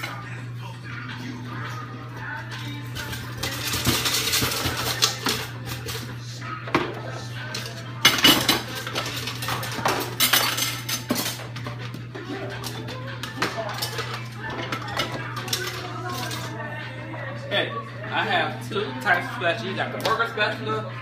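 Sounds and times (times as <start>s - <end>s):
kitchen utensils clattering: 2.8s - 16.7s.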